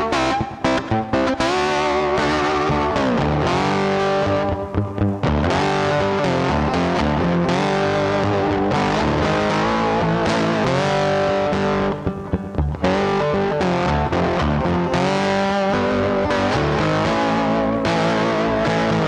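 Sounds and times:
guitar instrumental with bass: 0.0s - 19.0s.

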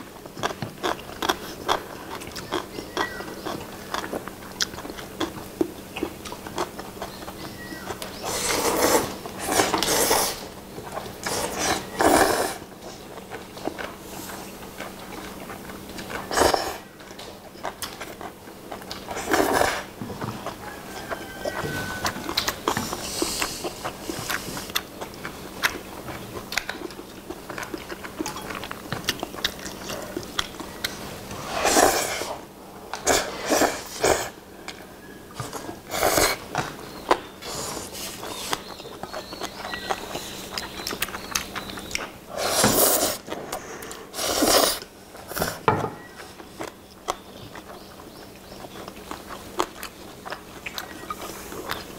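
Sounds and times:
chewing: 0.0s - 51.9s
slurping noodles: 8.2s - 10.5s, 11.2s - 12.6s, 16.3s - 16.9s, 19.1s - 19.9s, 31.3s - 32.4s, 42.3s - 45.6s.

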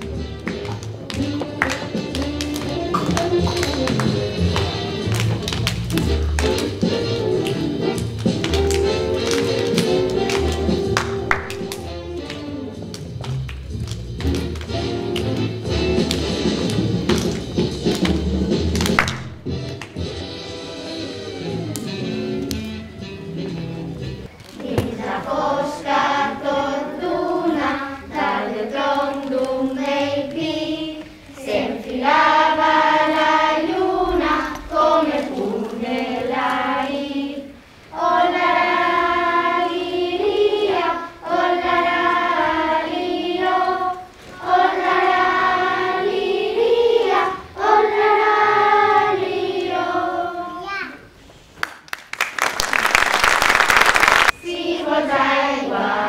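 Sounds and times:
children's choir singing: 1.2s - 12.8s, 24.6s - 50.6s, 54.4s - 56.0s.

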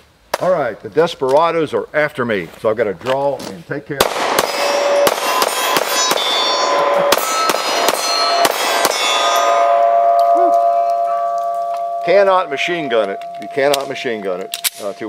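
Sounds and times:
rapid pistol fire: 4.0s - 6.4s
steel target plates ringing: 4.3s - 15.0s.

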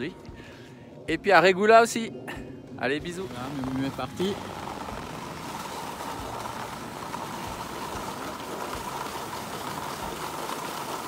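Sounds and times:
skis sliding over snow: 3.1s - 11.0s.

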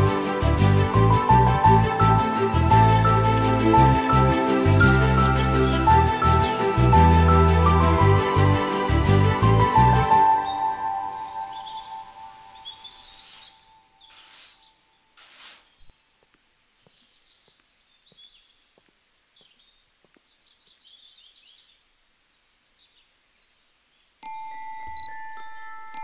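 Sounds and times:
faint birds chirping: 10.2s - 24.2s
broom sweeping pavement: 13.0s - 15.9s
chime-like music tones: 24.2s - 26.0s.

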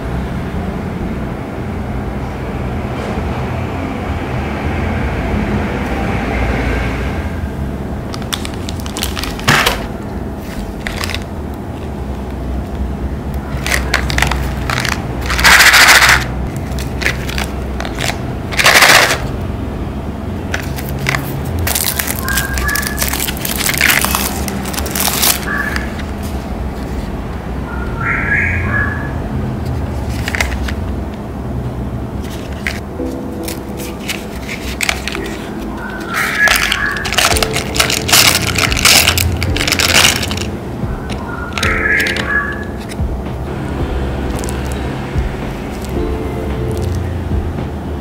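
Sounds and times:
steady low hum: 6.6s - 28.0s, 37.2s - 41.8s, 42.4s - 48.0s
plastic wrappers crinkling: 8.1s - 11.4s, 13.5s - 19.3s, 20.5s - 27.0s, 30.0s - 30.8s, 33.4s - 43.0s.

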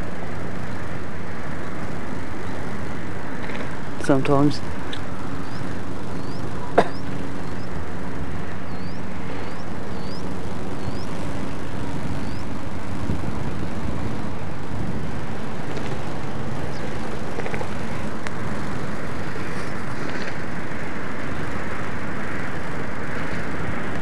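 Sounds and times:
road noise: 0.0s - 24.0s
vehicle engine: 0.0s - 24.0s.

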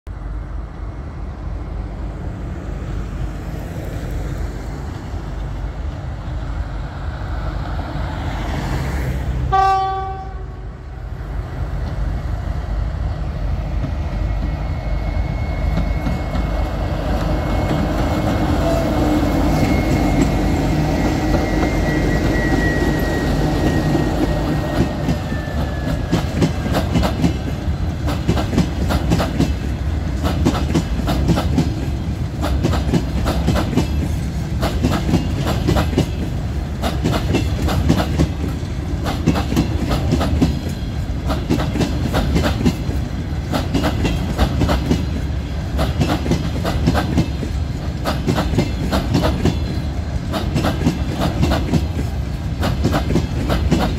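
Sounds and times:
diesel locomotive engines rumbling: 0.1s - 53.9s
locomotive horn blast: 9.5s - 10.8s.

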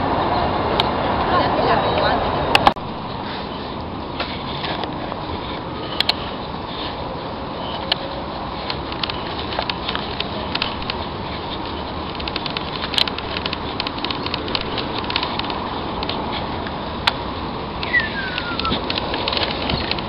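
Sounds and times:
bicycle rolling on dirt path: 2.8s - 20.0s
bicycle clicks and rattles: 4.1s - 20.0s.

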